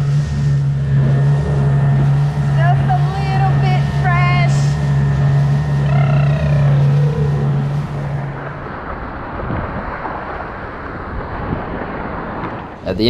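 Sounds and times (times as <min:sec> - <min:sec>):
outboard motor running: 0:00.0 - 0:10.4
rushing water: 0:00.0 - 0:13.0
wind noise: 0:00.0 - 0:13.0.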